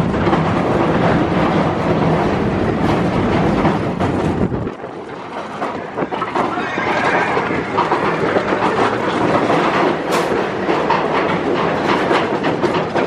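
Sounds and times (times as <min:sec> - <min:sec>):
roller coaster rumble: 0:00.0 - 0:13.0
wheels clattering on rail: 0:00.0 - 0:13.0
sharp clack: 0:08.8 - 0:13.0.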